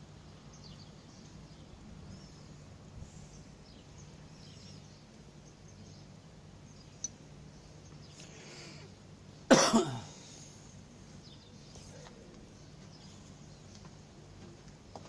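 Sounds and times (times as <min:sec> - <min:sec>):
person coughing: 0:09.5 - 0:10.2.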